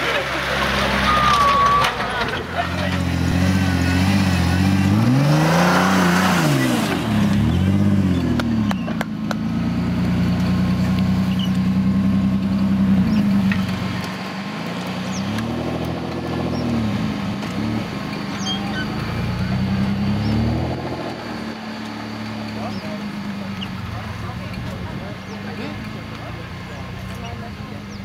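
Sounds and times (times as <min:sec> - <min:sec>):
engine revving hard: 0:02.8 - 0:08.8, 0:14.6 - 0:23.0.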